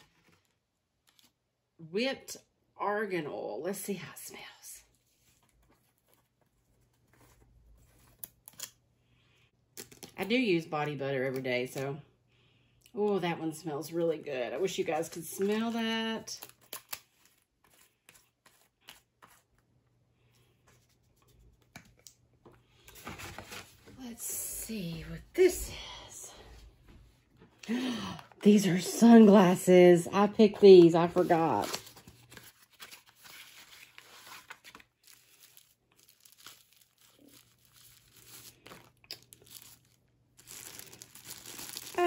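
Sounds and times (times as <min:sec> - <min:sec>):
faint clicks and rustles of packaging: 0:00.0 - 0:01.5, 0:04.8 - 0:12.0, 0:15.0 - 0:24.2, 0:30.8 - 0:42.0.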